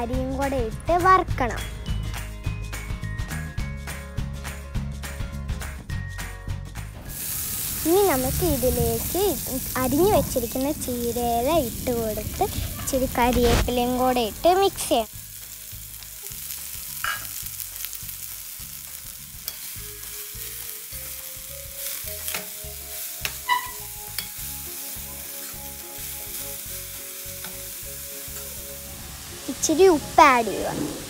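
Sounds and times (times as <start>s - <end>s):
spinach sizzling in hot oil: 7.0s - 31.0s
spoon clinking and scraping pan: 17.0s - 17.5s, 19.4s - 20.2s, 22.1s - 22.6s, 23.2s - 24.5s.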